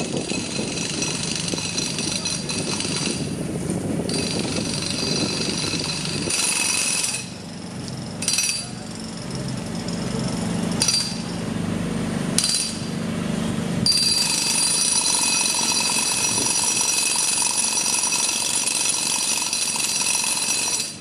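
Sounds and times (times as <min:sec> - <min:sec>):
power tool grinding steel: 0:00.0 - 0:03.5, 0:04.1 - 0:11.6, 0:12.3 - 0:13.0, 0:13.8 - 0:21.0
low hum: 0:07.4 - 0:14.4.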